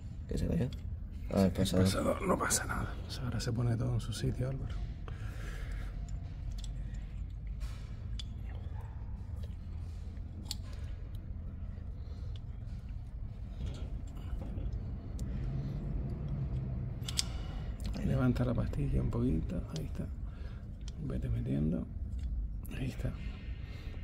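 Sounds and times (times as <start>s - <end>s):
low background hum: 0.0s - 24.0s
small metallic clicks and taps: 16.2s - 17.5s.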